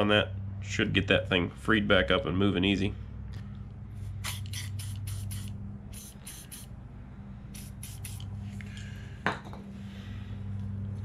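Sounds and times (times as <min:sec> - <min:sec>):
low hum: 0:00.0 - 0:11.0
aerosol spray hissing: 0:04.2 - 0:06.7, 0:07.5 - 0:08.3.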